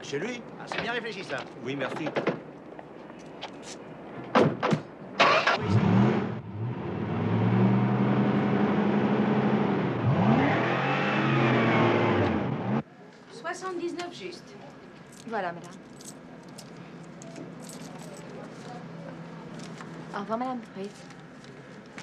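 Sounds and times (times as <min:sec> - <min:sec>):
car engine starting and revving: 0:05.2 - 0:12.8.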